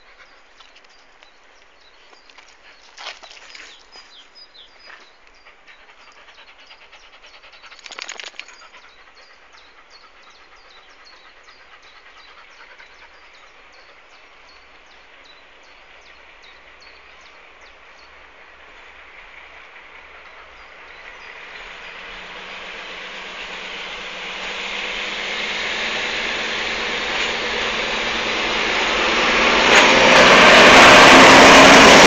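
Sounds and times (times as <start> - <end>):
distant diesel locomotive engine: 0.0 - 32.0.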